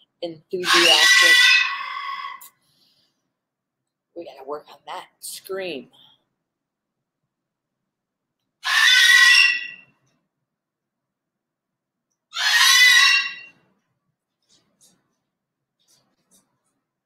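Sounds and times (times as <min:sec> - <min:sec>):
parrot screaming: 0:00.6 - 0:02.6, 0:08.6 - 0:09.9, 0:12.3 - 0:13.6.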